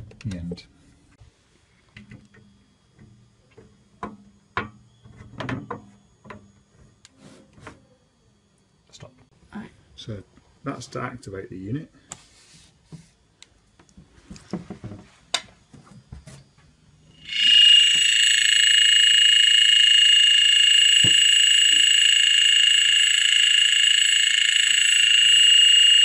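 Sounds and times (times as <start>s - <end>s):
high-pitched electronic alarm tone: 17.2s - 26.0s.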